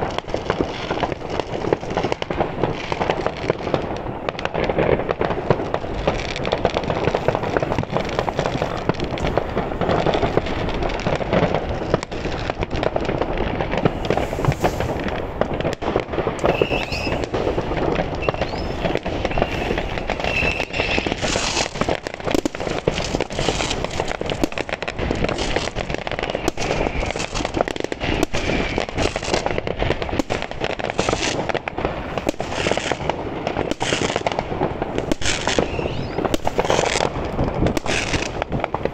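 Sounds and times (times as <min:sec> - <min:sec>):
fireworks and firecrackers crackling: 0:00.0 - 0:38.9
firework whistles: 0:13.8 - 0:15.1, 0:16.4 - 0:22.5, 0:25.3 - 0:30.3, 0:35.0 - 0:37.1, 0:37.8 - 0:38.4.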